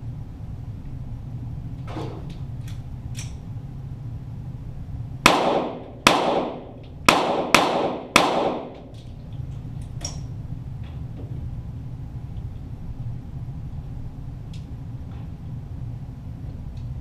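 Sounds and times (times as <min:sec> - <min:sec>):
pistol shots echoing: 0:05.3 - 0:08.9.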